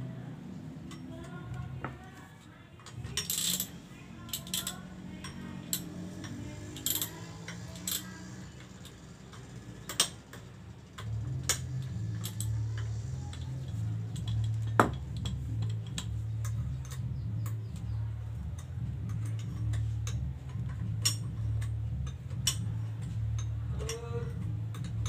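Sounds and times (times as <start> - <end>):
steady low hum: 0.0 - 25.0
ratchet wrench clicking: 2.8 - 17.8, 18.4 - 22.7.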